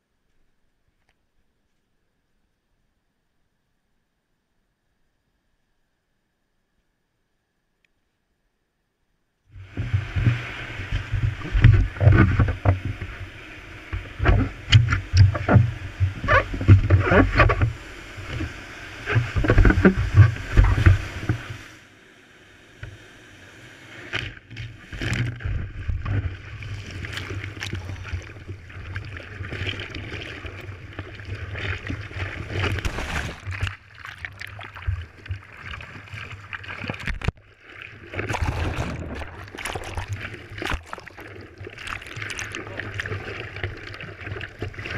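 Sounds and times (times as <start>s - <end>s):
water splashing against surfboard: 9.6s - 21.8s, 23.9s - 44.9s.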